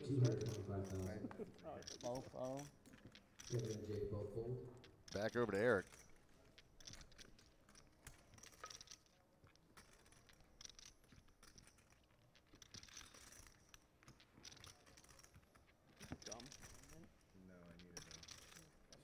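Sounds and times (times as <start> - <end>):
poker chips clicking: 0.1 - 4.0.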